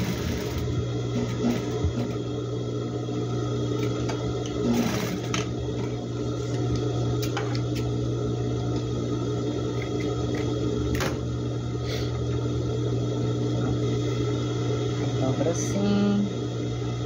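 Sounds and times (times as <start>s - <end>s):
sewing machine motor running: 0.0s - 2.2s, 4.6s - 5.5s.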